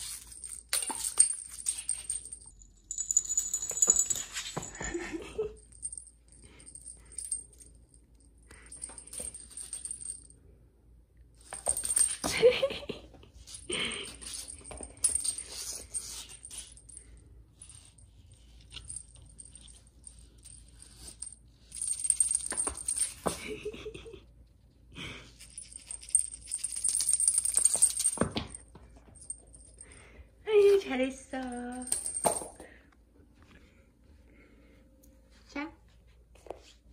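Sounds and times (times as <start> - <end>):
small bell jingling: 0.0 - 10.4, 11.4 - 12.8, 13.4 - 24.0, 25.4 - 30.2, 31.0 - 32.6.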